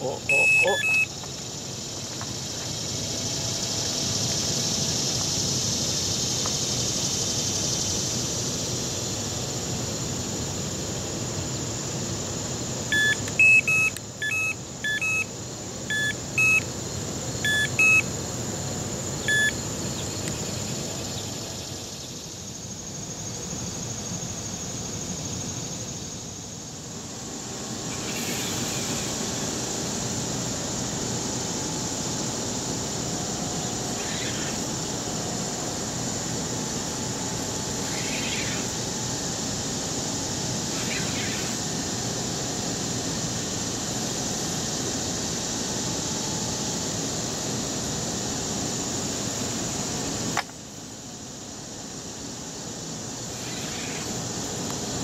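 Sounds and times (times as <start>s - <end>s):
bite alarm beeps: 0.0s - 1.1s, 12.9s - 15.3s, 15.9s - 16.7s, 17.4s - 18.1s, 19.2s - 19.6s
steady hiss: 0.0s - 55.0s.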